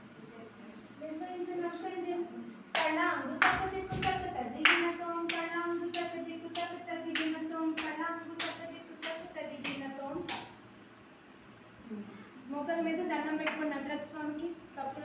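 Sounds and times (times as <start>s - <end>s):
sharp rhythmic beats: 2.7s - 10.7s.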